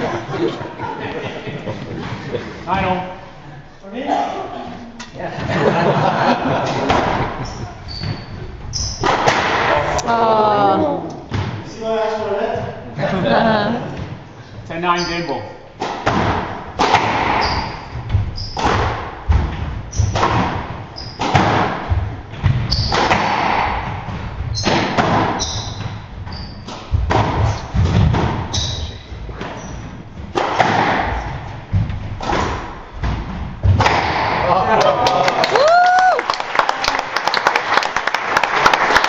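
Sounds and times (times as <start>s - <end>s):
squash ball striking rackets and walls: 6.6s - 10.1s, 11.2s - 11.8s, 15.8s - 34.8s
shoes squeaking on wooden floor: 6.9s - 9.4s, 13.9s - 15.5s, 17.2s - 33.8s.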